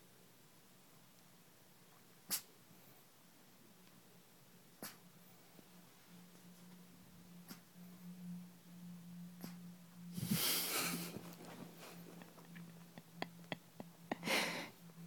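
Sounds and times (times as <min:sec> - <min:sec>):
breathy puff: 0:10.2 - 0:12.0
dog snuffling: 0:10.2 - 0:12.4.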